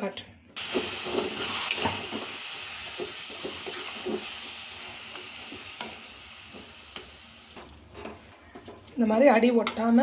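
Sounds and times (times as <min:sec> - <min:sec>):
frying hiss: 0:00.6 - 0:09.4.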